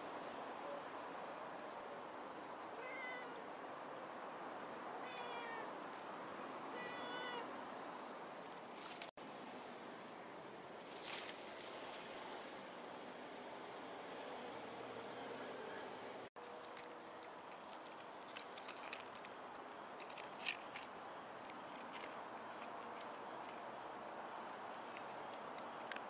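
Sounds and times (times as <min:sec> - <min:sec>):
short rustle: 0:08.5 - 0:09.1, 0:10.8 - 0:12.6
kitten crunching dry food: 0:16.5 - 0:23.6.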